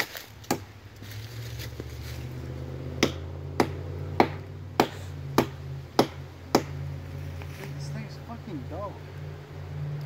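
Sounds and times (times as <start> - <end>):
hatchet chopping tree trunk: 0.0 - 0.8, 2.8 - 6.8.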